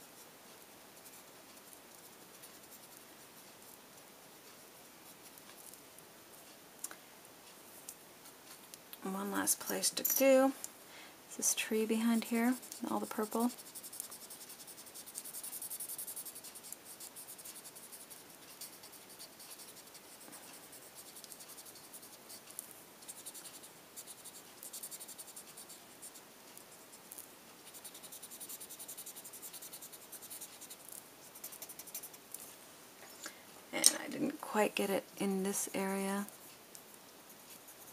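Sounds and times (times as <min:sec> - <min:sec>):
pencil scratching on paper: 0:11.7 - 0:32.2.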